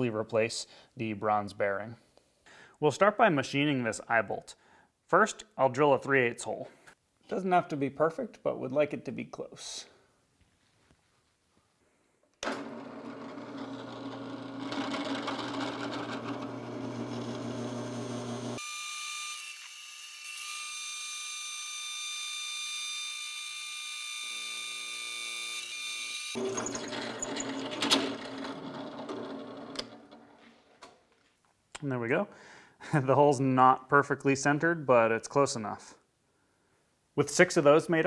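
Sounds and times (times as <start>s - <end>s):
drill press drilling steel: 12.4s - 18.6s, 26.4s - 30.2s.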